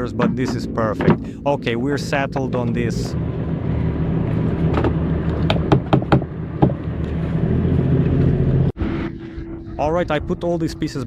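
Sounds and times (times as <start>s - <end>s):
low motor hum: 0.0s - 11.0s.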